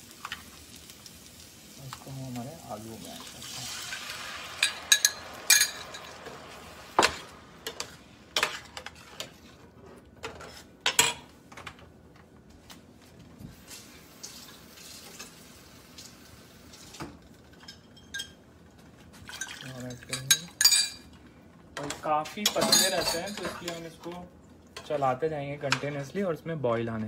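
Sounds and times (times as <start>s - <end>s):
metal spoon scraping a skillet: 4.6s - 9.6s.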